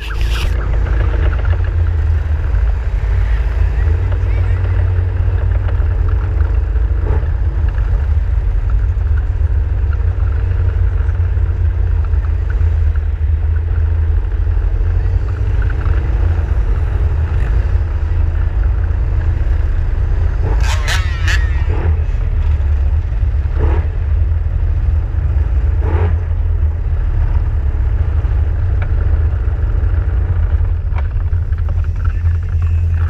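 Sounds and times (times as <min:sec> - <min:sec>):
vehicle engine running: 0:00.0 - 0:33.0
wind and road rumble: 0:00.0 - 0:33.0.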